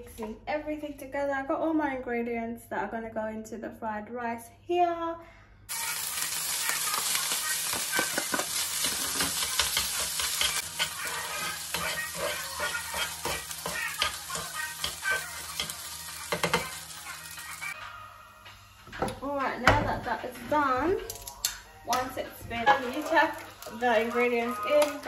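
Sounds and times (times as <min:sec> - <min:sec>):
rice sizzling in a frying pan: 0:05.7 - 0:17.8, 0:22.6 - 0:25.0
metal utensils scraping a pan: 0:08.0 - 0:16.9.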